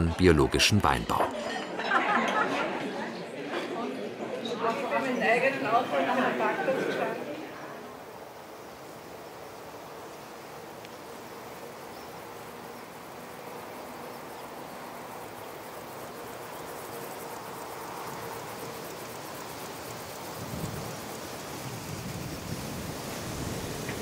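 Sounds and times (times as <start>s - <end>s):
insects chirring: 5.1s - 24.0s.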